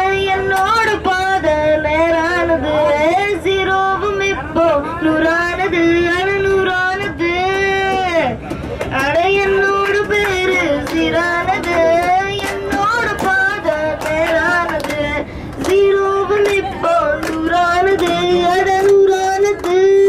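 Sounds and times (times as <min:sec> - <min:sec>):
passengers clapping along: 0:00.1 - 0:01.6, 0:06.3 - 0:20.0
child singing into microphone: 0:09.0 - 0:20.0.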